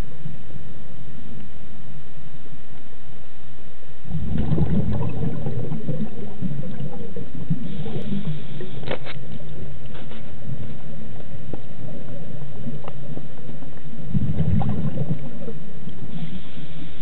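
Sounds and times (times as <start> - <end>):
underwater regulator bubbling: 4.0 - 17.0.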